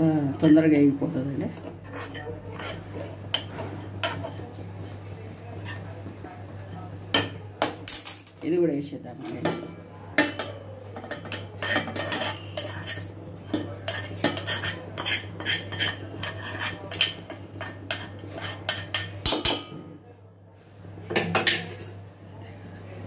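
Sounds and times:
metal spoon scraping and clinking: 0:01.6 - 0:04.5, 0:10.2 - 0:19.6.

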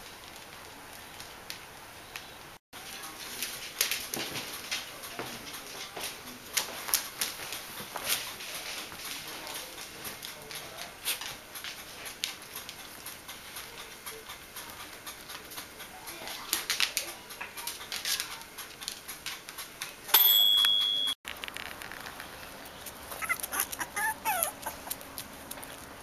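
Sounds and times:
dog claws clicking on tiles: 0:03.2 - 0:20.1, 0:21.3 - 0:26.0
loud high beep: 0:20.2 - 0:21.2
soft dog sounds: 0:22.8 - 0:26.0.

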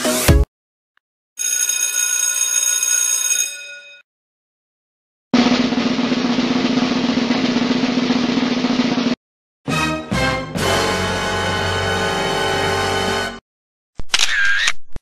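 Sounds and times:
drum roll: 0:05.4 - 0:09.2.

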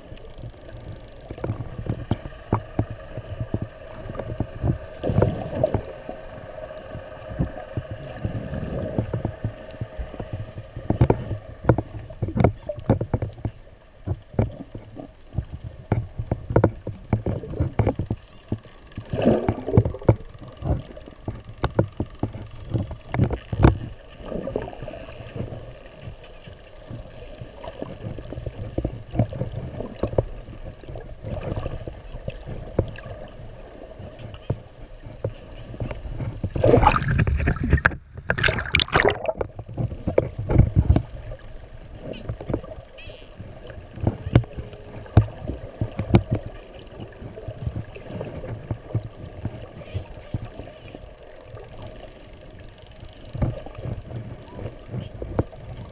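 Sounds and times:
underwater water rumble: 0:00.0 - 0:55.9
dolphins whistling: 0:03.2 - 0:07.9, 0:08.6 - 0:10.9
water rushing: 0:36.5 - 0:39.7.

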